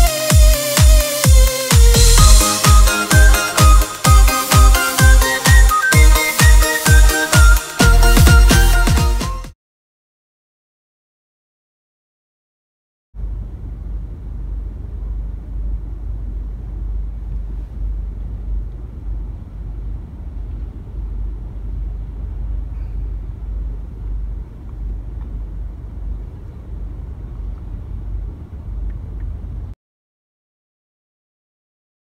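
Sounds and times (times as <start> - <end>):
traffic rumble: 13.2 - 29.8.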